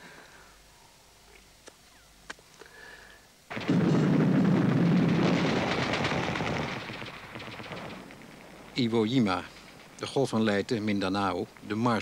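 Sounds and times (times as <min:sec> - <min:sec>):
explosion blasts: 0:03.5 - 0:08.8
rapid gunfire: 0:03.5 - 0:10.9.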